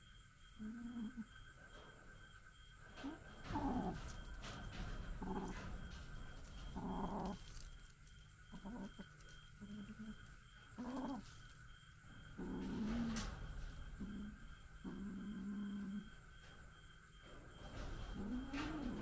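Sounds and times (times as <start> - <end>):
kittens growling: 0.6 - 1.3, 3.0 - 11.6, 12.2 - 16.2, 18.1 - 19.0.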